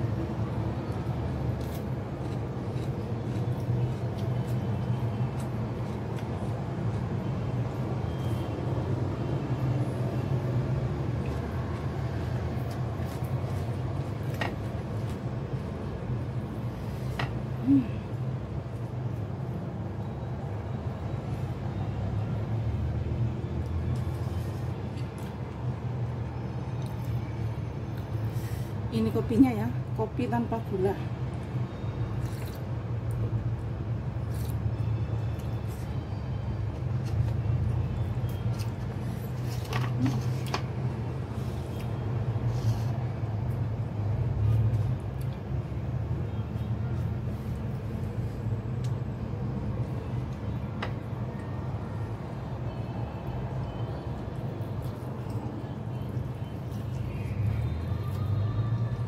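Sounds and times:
low mechanical hum: 0.0 - 59.0.

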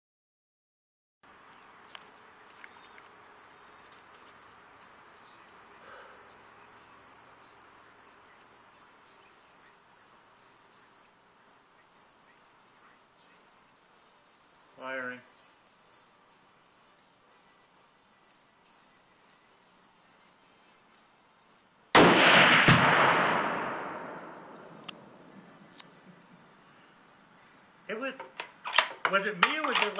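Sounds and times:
crickets chirring: 1.2 - 29.9
rifle shot and exploding target: 21.9 - 25.1.

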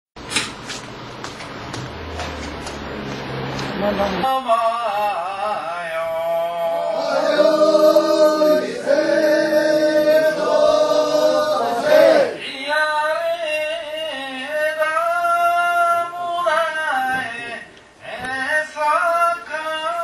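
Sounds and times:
group chanting: 5.3 - 12.5.

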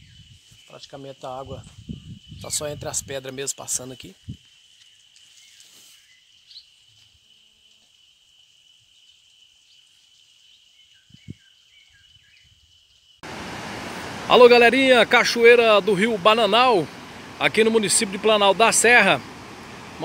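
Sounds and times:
soft bird chirps: 3.7 - 13.2
river rushing: 13.2 - 20.0.

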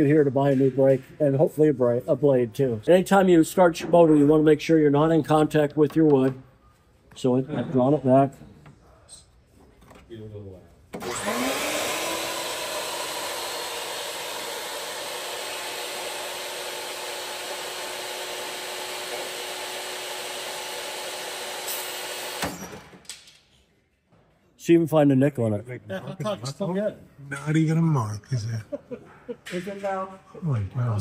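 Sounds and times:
table saw motor whine: 11.0 - 22.5.

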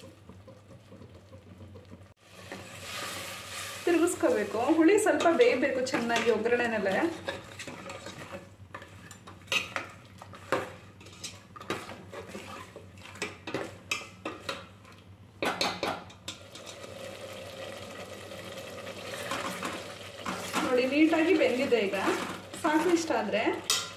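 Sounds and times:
steel ladle scraping a metal pot: 6.1 - 13.3.

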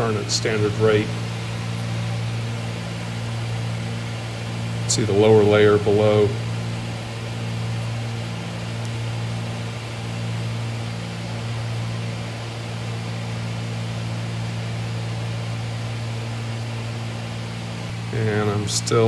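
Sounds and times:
propeller plane engine drone: 0.0 - 19.0.

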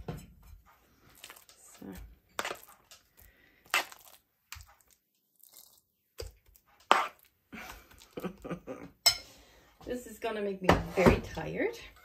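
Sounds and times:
spoon scraping frying pan: 0.3 - 5.7, 6.6 - 7.3.

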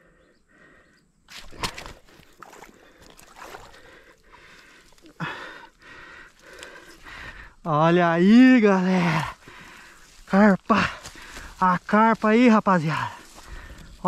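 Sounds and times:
water splashing: 1.3 - 5.5.

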